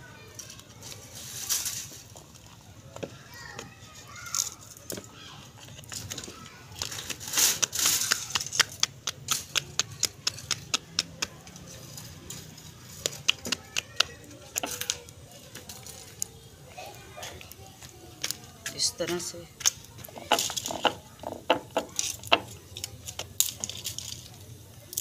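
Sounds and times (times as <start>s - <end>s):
hands slapping dough: 7.1s - 11.4s, 13.0s - 14.3s.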